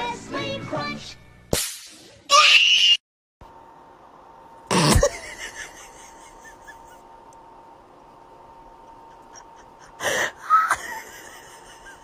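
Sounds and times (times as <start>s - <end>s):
faint steady hum: 3.4s - 12.0s.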